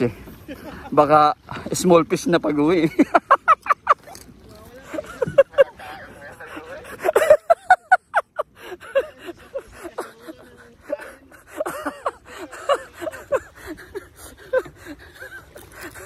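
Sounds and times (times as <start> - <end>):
man laughing heartily: 2.8 - 4.1, 4.9 - 16.0.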